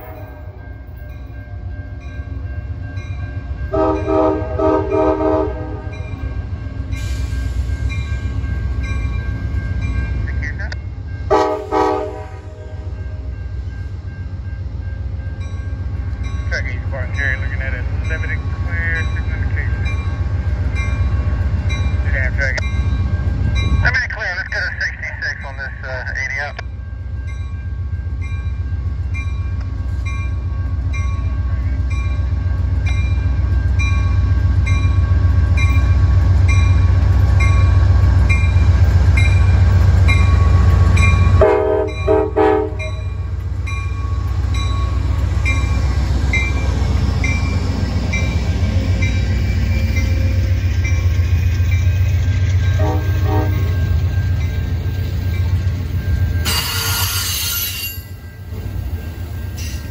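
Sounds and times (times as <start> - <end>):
crossing bell ringing: 0.0 - 59.9
diesel locomotive rumbling: 0.0 - 59.9
train horn blast: 3.7 - 6.0, 11.3 - 13.0, 41.3 - 43.1, 52.7 - 53.9, 56.4 - 58.0
wheel squeal: 56.4 - 58.2.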